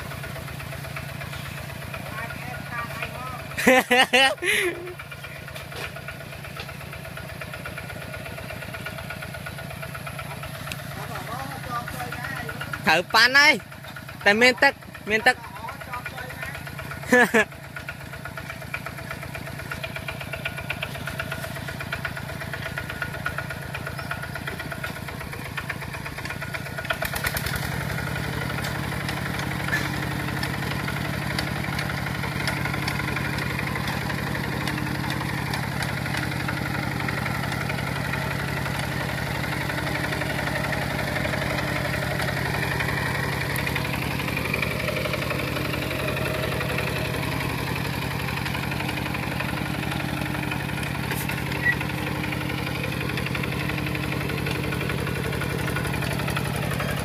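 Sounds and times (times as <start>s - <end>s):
diesel tractor engine running: 0.0s - 57.0s.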